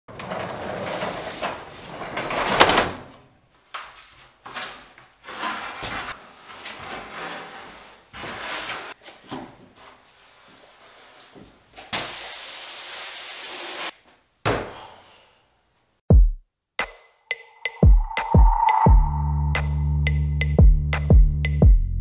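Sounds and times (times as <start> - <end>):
rushing noise: 17.3 - 20.4.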